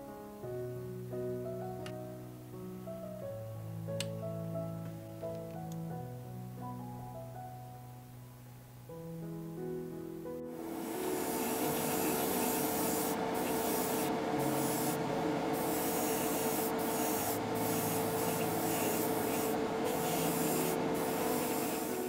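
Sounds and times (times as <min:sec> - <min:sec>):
airbrush spraying hiss: 0:10.5 - 0:22.0
motor hum: 0:10.5 - 0:22.0.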